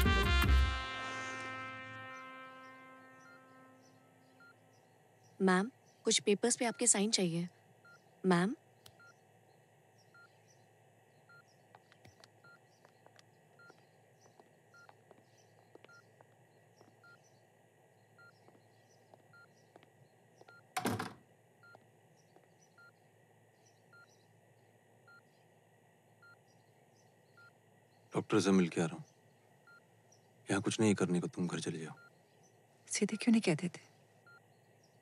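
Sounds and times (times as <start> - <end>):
patient monitor beeping: 4.1 - 4.7, 5.5 - 10.5, 11.1 - 23.0, 23.9 - 24.3, 25.0 - 25.3, 26.2 - 26.5, 27.3 - 29.0, 29.6 - 30.0, 30.6 - 32.2, 32.9 - 34.6.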